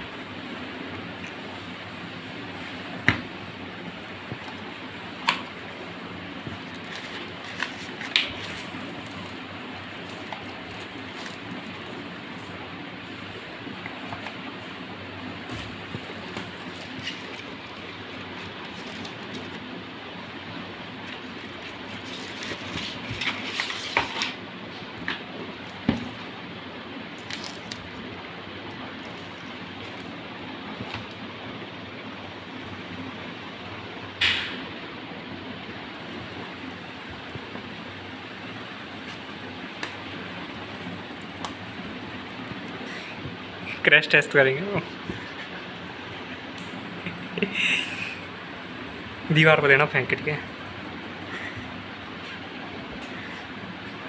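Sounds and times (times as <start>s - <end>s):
low background hum: 0.0s - 54.0s
paper and card rustling: 6.4s - 26.3s.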